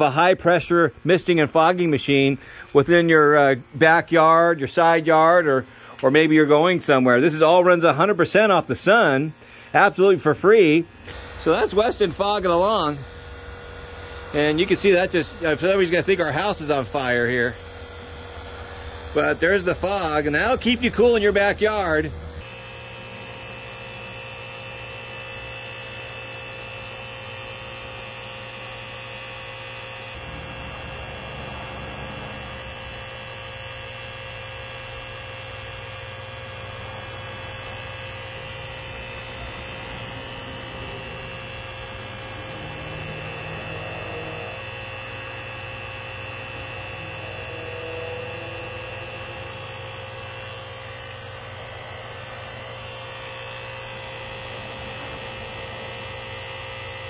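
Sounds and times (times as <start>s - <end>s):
pump electric hum: 0.0s - 57.0s.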